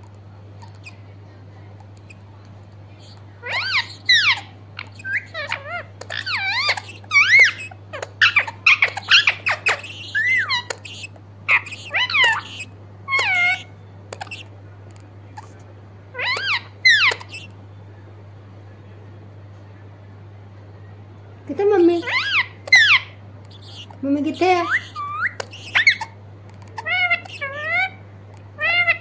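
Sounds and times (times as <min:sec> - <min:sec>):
parakeet chattering squeaky calls: 0:02.9 - 0:14.6, 0:15.4 - 0:17.6, 0:21.7 - 0:28.0, 0:28.6 - 0:29.0.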